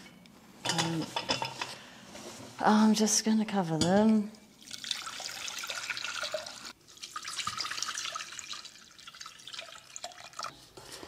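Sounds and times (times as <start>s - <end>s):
water pouring into saucepan: 4.6s - 10.5s.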